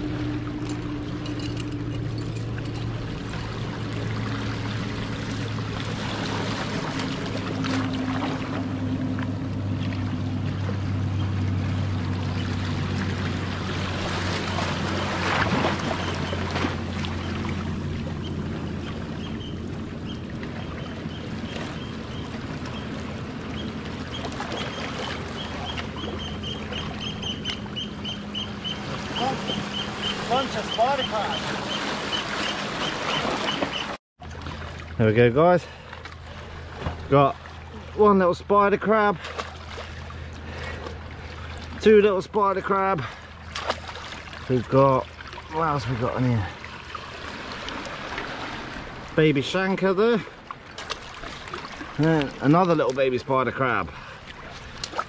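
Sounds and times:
low engine hum: 0.0 - 55.0
water lapping around rocks: 0.0 - 55.0
bird calling high notes: 23.6 - 34.0.

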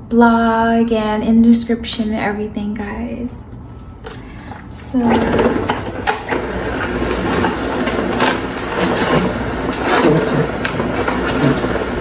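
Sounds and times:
juicer motor humming: 4.1 - 12.0
auger grinding leafy greens: 4.9 - 12.0.

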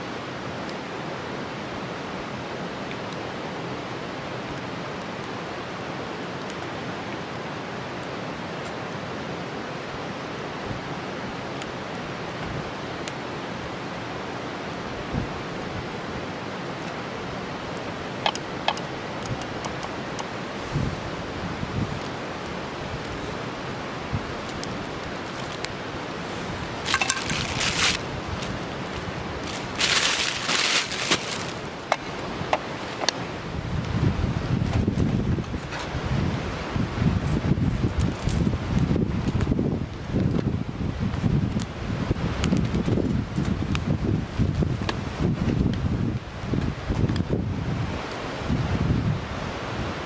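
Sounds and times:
running water: 0.0 - 33.6
rushing outdoor background: 0.0 - 50.0
bread rustling: 26.9 - 31.7.

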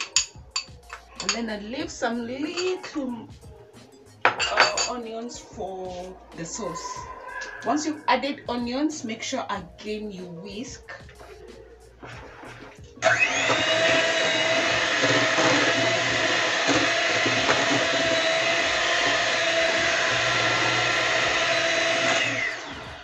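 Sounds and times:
electric mixer motor whining: 11.1 - 23.0.

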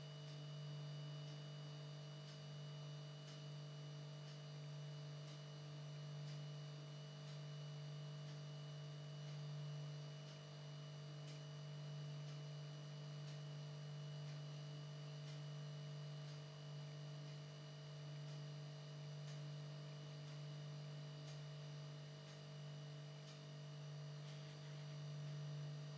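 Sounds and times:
faint ticks: 0.2 - 25.9
faint low hum: 15.2 - 25.9.

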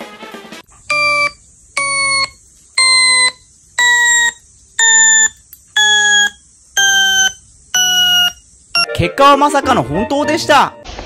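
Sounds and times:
electronic beeps: 0.9 - 8.9.

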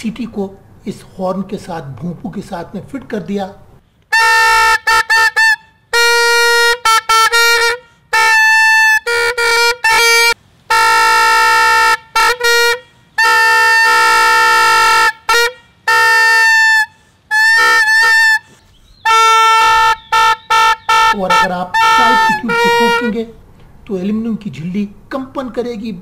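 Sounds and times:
plastic horn toy tooting: 4.1 - 23.2.

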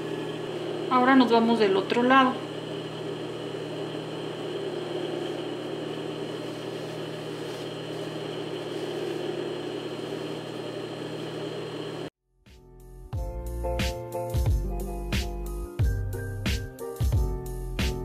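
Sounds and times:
sewing machine motor hum: 0.0 - 12.1.

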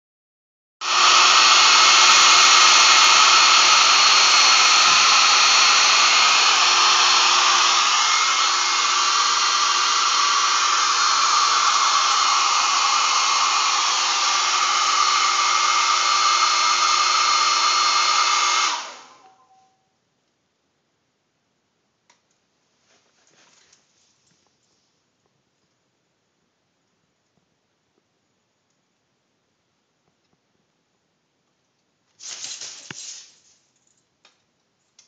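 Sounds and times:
hair dryer running: 0.8 - 19.4.

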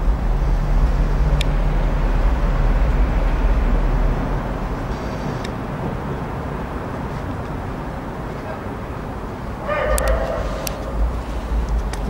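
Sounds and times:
low rumble of road traffic: 0.0 - 12.0.

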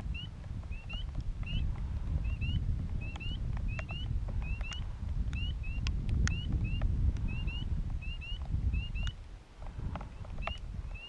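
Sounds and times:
small bird chirping: 0.0 - 9.2, 10.1 - 11.0
wind rumble on microphone: 0.0 - 11.0.

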